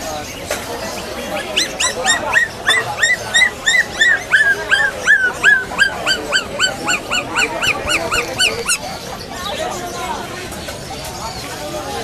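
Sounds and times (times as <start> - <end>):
puppy yelping: 1.3 - 8.9.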